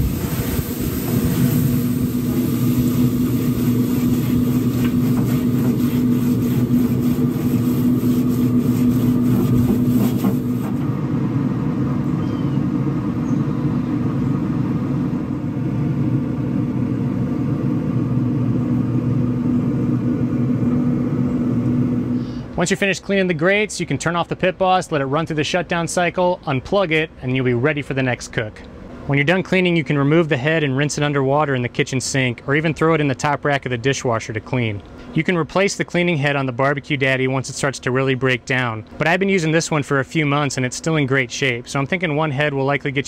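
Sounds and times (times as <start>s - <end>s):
brush scrubbing hot grill grates: 0.0s - 10.8s
grill fan humming: 0.0s - 43.0s.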